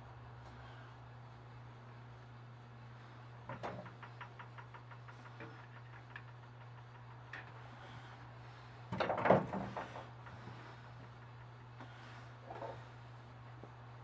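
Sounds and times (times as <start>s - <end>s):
low electrical hum: 0.0s - 14.0s
clatter of metal knocks: 3.5s - 7.6s, 8.9s - 10.4s.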